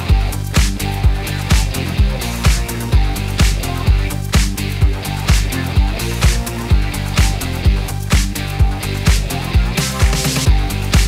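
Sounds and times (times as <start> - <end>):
kick drum: 0.0 - 11.0
rock music: 0.0 - 11.0.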